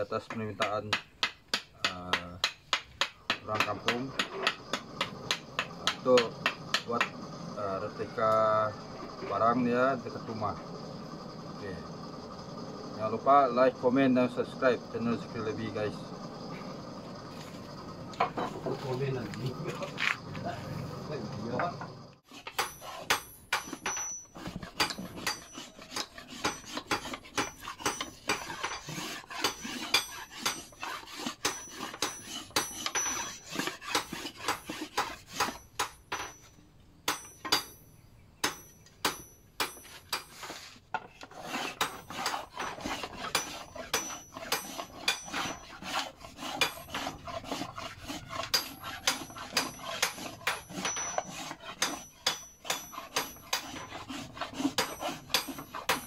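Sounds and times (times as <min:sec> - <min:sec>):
knife scraping wood: 0:22.2 - 0:36.3, 0:39.6 - 0:56.0.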